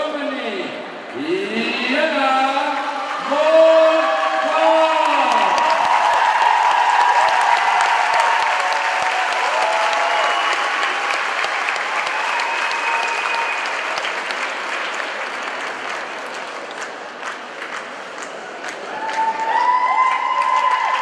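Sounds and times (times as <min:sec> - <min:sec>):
cheers: 0:02.4 - 0:15.4, 0:18.2 - 0:21.0
audience applauding: 0:02.6 - 0:21.0.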